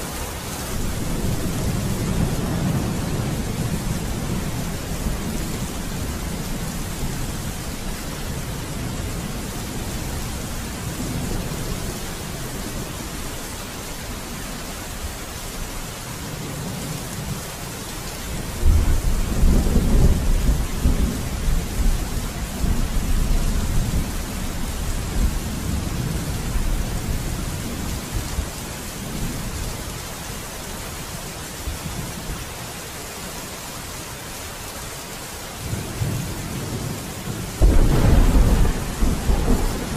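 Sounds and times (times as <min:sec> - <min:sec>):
steady rain: 0:00.0 - 0:39.9
thunder rumbling: 0:00.7 - 0:12.9, 0:18.4 - 0:27.9, 0:36.0 - 0:39.9.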